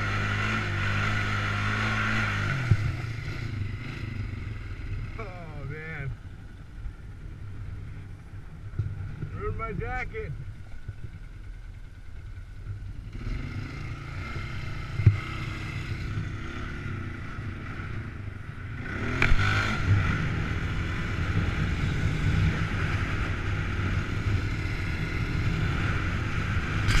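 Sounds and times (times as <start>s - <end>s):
atv engine running: 0.0s - 27.0s.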